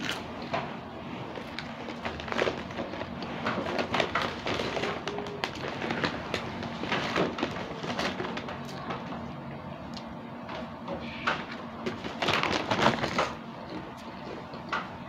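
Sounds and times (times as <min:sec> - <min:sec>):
foil snack bag crinkling: 0:01.2 - 0:08.9, 0:11.9 - 0:14.4.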